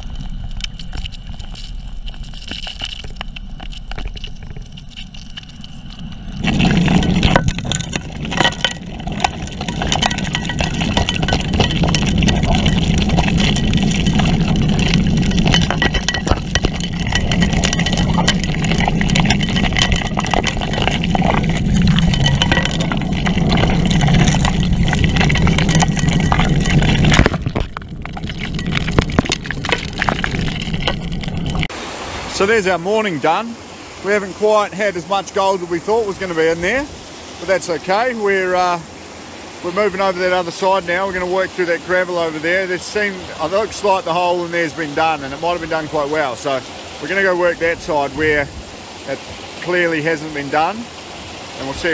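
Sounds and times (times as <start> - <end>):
stones clicking in suction nozzle: 0.0 - 31.7
underwater engine and pump drone: 0.0 - 32.0.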